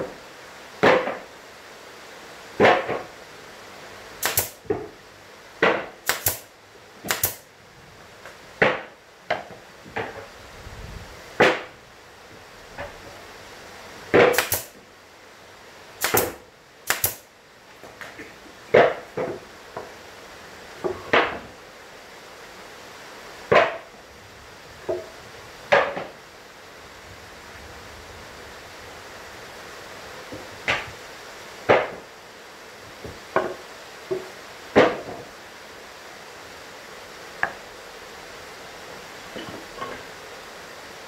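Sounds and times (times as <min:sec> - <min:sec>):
brad nailer firing sharp clacks: 0:04.2 - 0:04.6, 0:05.6 - 0:07.5, 0:14.2 - 0:14.8, 0:16.0 - 0:17.3.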